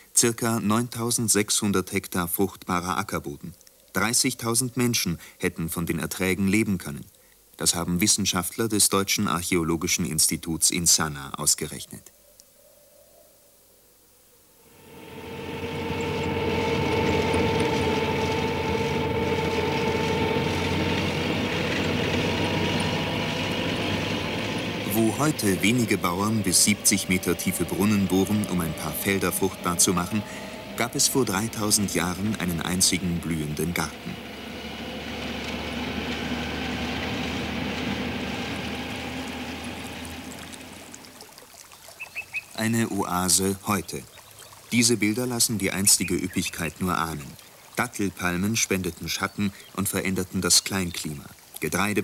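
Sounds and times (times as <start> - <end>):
vehicle driving on sandy track: 14.8 - 41.2.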